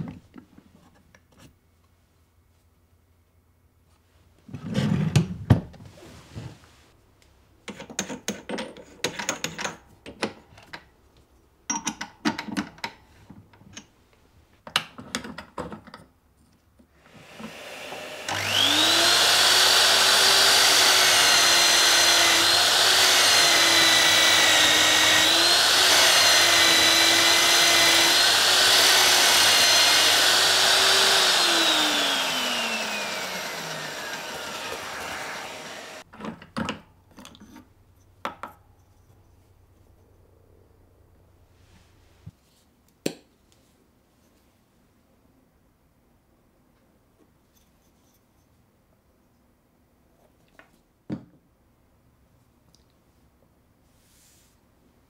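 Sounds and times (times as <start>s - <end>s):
electric drill boring through wood: 17.0s - 36.0s.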